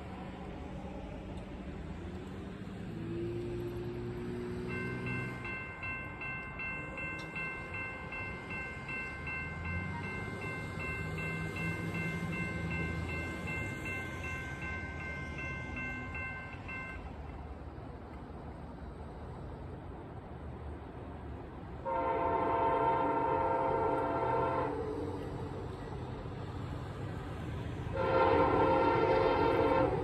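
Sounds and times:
railroad crossing bell ringing: 4.2 - 17.3, 21.9 - 26.0, 27.9 - 30.0
faint train horn: 21.8 - 25.8, 27.9 - 30.0.

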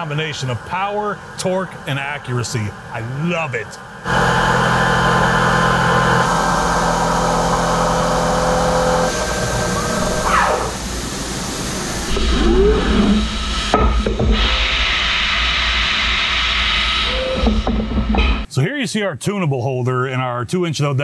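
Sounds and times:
air hiss: 0.0 - 13.8
coolant hiss: 0.0 - 13.8
spindle winding down whine: 0.0 - 18.3
milling machine cutting metal hum: 3.8 - 15.2.

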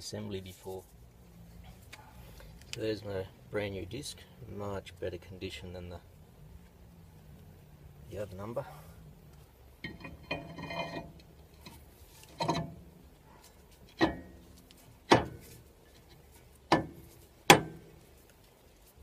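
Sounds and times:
sharp metal clanks: 9.8 - 12.9, 13.9 - 14.4, 16.7 - 17.9
ringing metal scrape: 9.8 - 13.0, 13.9 - 14.6.

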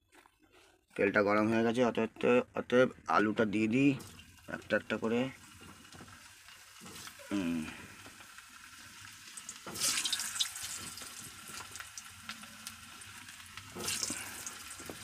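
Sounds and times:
potatoes sizzling in hot oil: 3.4 - 15.0.

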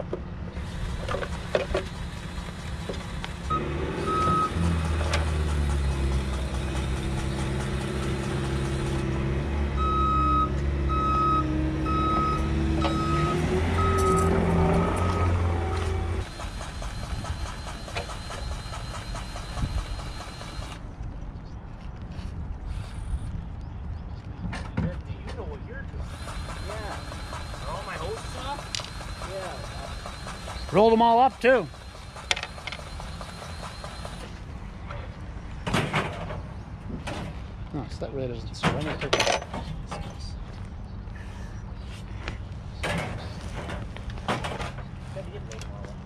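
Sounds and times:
vehicle engine running: 0.0 - 20.8, 26.0 - 35.2
backup alarm beeping: 3.4 - 4.7, 9.8 - 20.8, 26.2 - 34.3.

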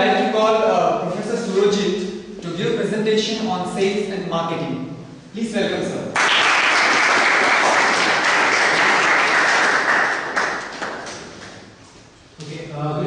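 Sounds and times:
crowd applauding: 6.2 - 11.6.

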